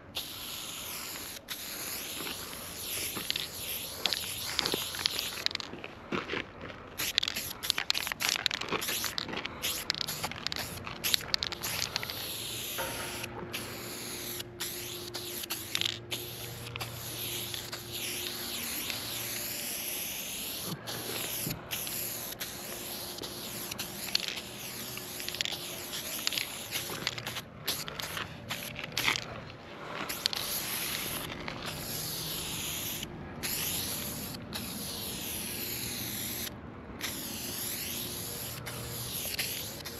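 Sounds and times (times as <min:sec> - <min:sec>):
spray paint can hissing: 0:00.1 - 0:05.7, 0:07.0 - 0:29.3, 0:30.0 - 0:39.9.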